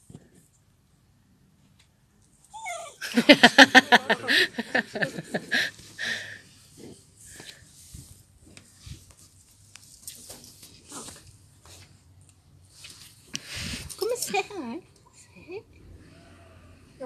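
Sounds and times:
dog whining: 0:02.5 - 0:03.0.

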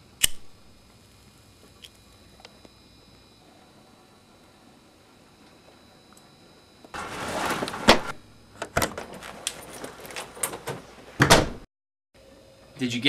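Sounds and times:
door opening: 0:07.0 - 0:11.6.

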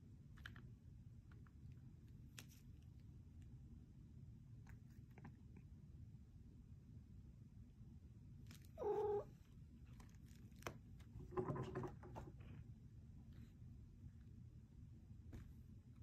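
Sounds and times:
cat meowing: 0:08.8 - 0:09.4.

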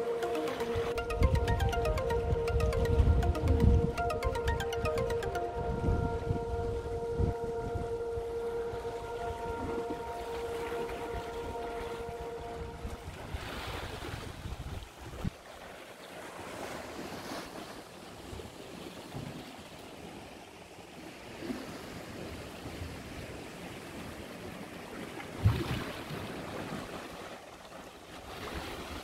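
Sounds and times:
wind on microphone: 0:05.5 - 0:15.4, 0:25.4 - 0:26.2.

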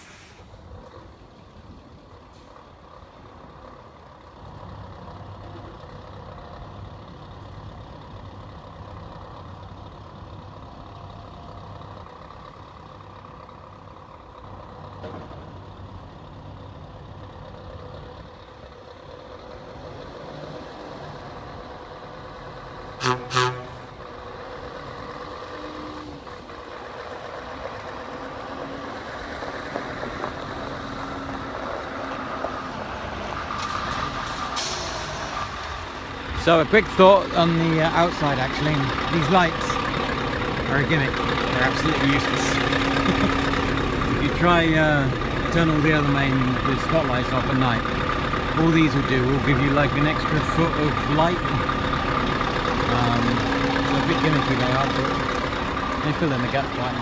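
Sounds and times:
diesel truck engine running: 0:00.0 - 0:57.0
truck horn blasts: 0:22.9 - 0:24.0.

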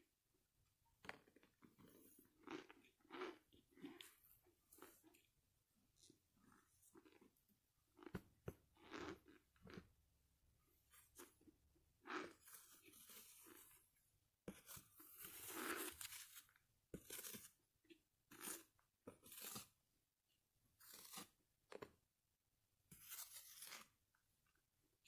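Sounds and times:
person chewing crunchy food: 0:01.0 - 0:05.3, 0:06.0 - 0:09.9, 0:10.9 - 0:13.8, 0:14.7 - 0:17.5.

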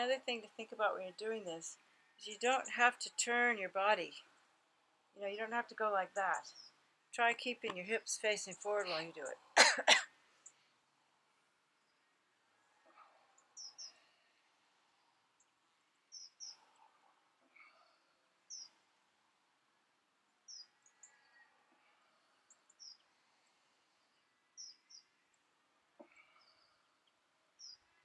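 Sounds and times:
high bird chirps: 0:13.6 - 0:14.0, 0:16.1 - 0:16.7.

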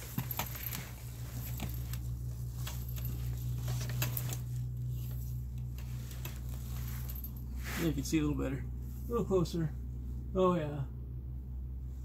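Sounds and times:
wheelchair clicks and crackles: 0:00.0 - 0:07.4
steady low hum: 0:00.0 - 0:12.0.

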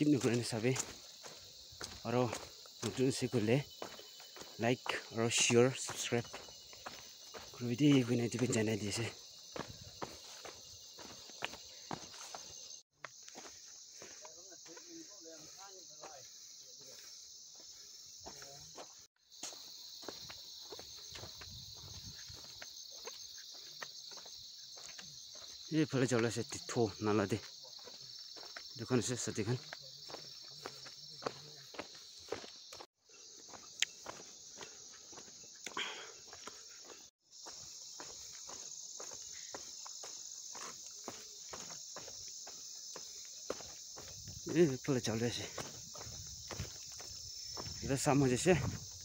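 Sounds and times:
footsteps on dirt path: 0:00.0 - 0:49.0
high-pitched insect chorus: 0:00.0 - 0:49.0.

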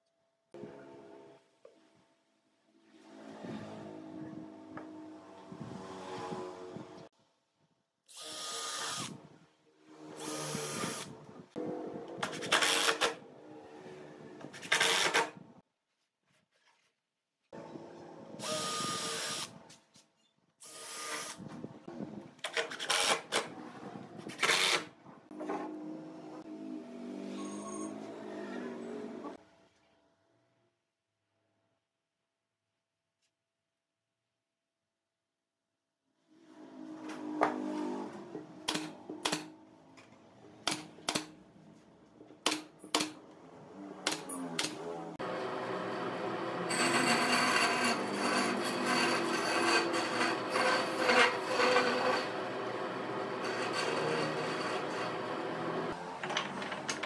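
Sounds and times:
drill driving screws into wood: 0:08.1 - 0:09.3, 0:10.2 - 0:11.1, 0:12.2 - 0:13.2, 0:14.5 - 0:15.4, 0:18.4 - 0:19.6, 0:20.6 - 0:21.4, 0:22.4 - 0:23.5, 0:24.3 - 0:24.9.

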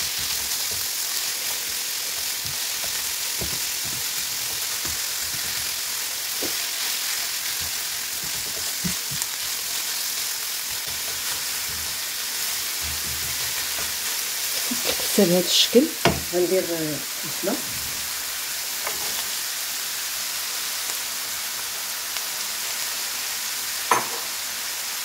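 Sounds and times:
meat and onion sizzling in a pan: 0:00.0 - 0:25.0
spatula scraping and tapping pan: 0:07.4 - 0:09.4, 0:12.6 - 0:15.2, 0:18.8 - 0:19.3.

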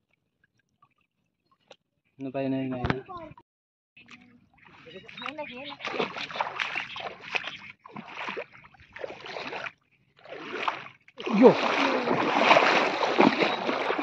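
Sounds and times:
water swishing and splashing: 0:04.0 - 0:14.0.

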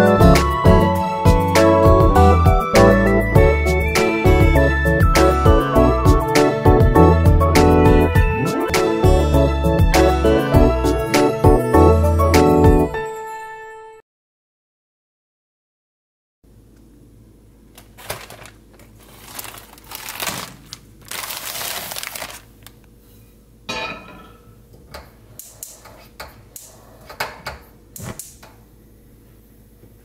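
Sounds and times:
plastic bag rustling: 0:17.8 - 0:22.8.

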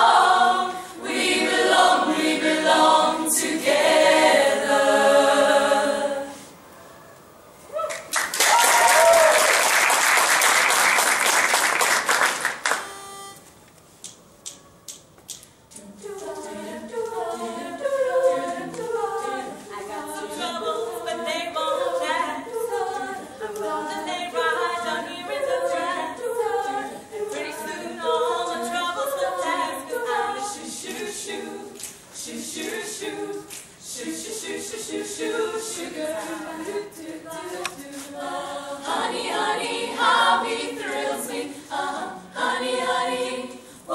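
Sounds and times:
women singing a cappella: 0:00.0 - 0:06.6, 0:15.7 - 0:43.9
applause: 0:07.9 - 0:12.9.

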